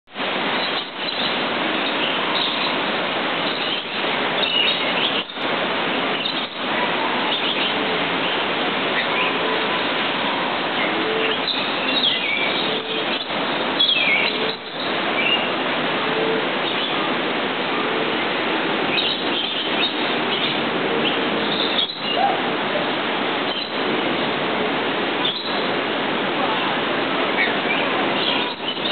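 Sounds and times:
steady rushing noise: 0:00.1 - 0:28.9
birds chirping: 0:00.5 - 0:15.7, 0:16.5 - 0:24.3, 0:25.1 - 0:25.8, 0:26.6 - 0:28.9.

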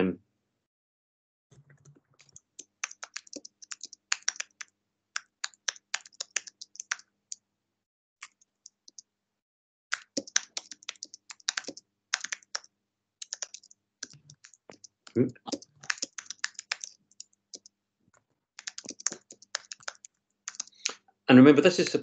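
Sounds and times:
keyboard typing: 0:01.6 - 0:07.4, 0:08.2 - 0:09.0, 0:09.9 - 0:17.7, 0:18.6 - 0:21.0.

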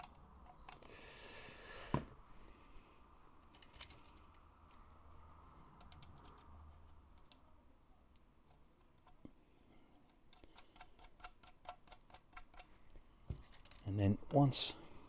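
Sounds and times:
small metal clicks and taps: 0:10.0 - 0:13.9.

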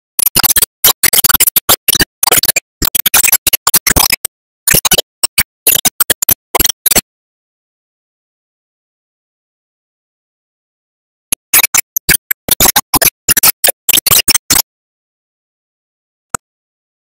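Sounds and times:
stuttering record scratching music: 0:00.2 - 0:07.0, 0:11.3 - 0:14.6.

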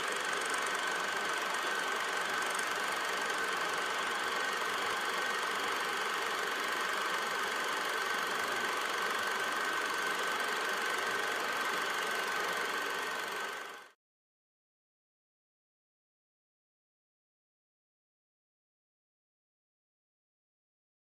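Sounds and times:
film projector running: 0:00.0 - 0:14.0.

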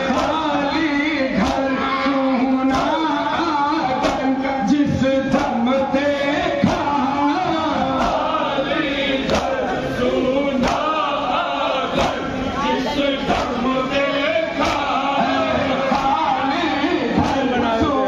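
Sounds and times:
men reciting in unison: 0:00.0 - 0:18.0
chest-beating slaps: 0:09.3 - 0:09.6, 0:14.6 - 0:14.9.

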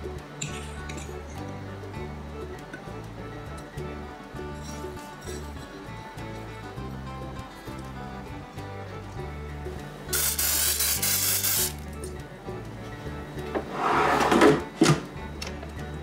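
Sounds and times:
background music: 0:00.0 - 0:16.0
oil sprayer hissing: 0:10.1 - 0:11.8
drawer shutting clunk: 0:13.5 - 0:15.1
drawer sliding in with scrape: 0:13.6 - 0:15.0.

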